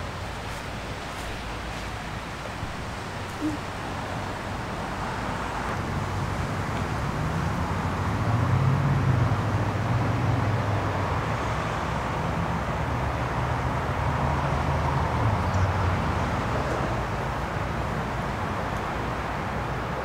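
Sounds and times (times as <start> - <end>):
constant hiss: 0.0 - 8.2
road traffic rumble: 0.0 - 20.0.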